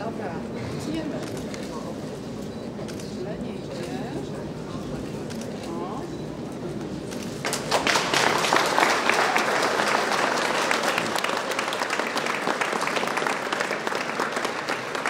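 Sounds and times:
crowd applauding: 7.4s - 15.0s.

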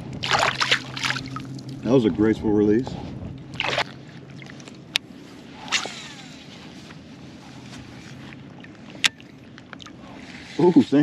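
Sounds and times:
water lapping: 0.0s - 1.9s, 2.9s - 11.0s
wind: 0.0s - 11.0s
fishing rod swish: 5.6s - 6.4s
line whirring off spool: 5.6s - 6.5s.

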